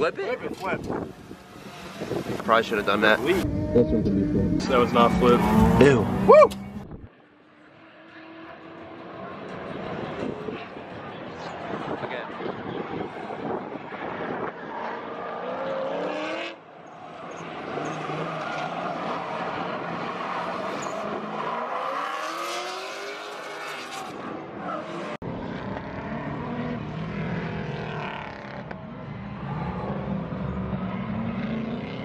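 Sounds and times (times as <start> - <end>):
car engines revving: 0.0 - 32.0
low engine drone: 3.4 - 7.1.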